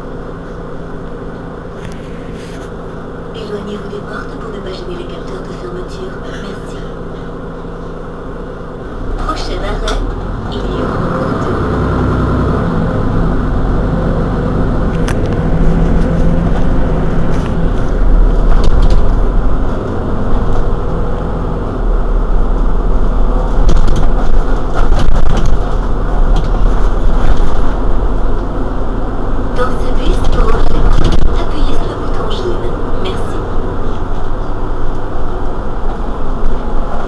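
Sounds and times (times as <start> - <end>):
bus engine running: 0.0 - 37.0
rattles and clicks: 14.9 - 20.7, 23.5 - 28.5, 29.8 - 32.2.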